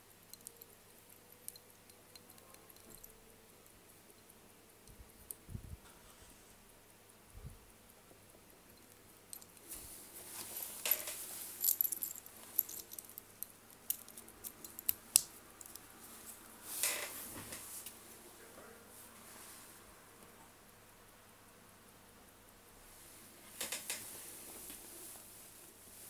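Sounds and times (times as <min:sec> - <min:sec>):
light metallic clicks and rattles: 0:00.3 - 0:03.2, 0:10.8 - 0:15.9.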